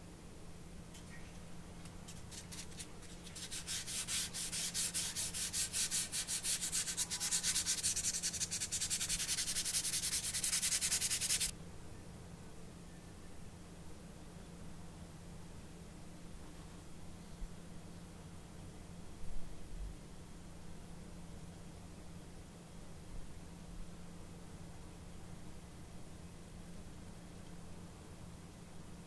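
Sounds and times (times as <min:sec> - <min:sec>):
sandpaper rubbing on plastic: 0:02.1 - 0:11.5.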